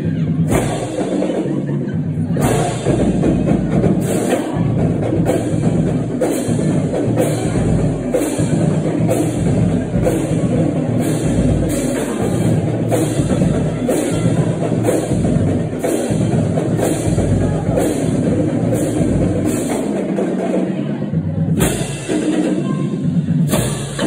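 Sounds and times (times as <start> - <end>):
loud drum-heavy music: 0.0 - 24.0.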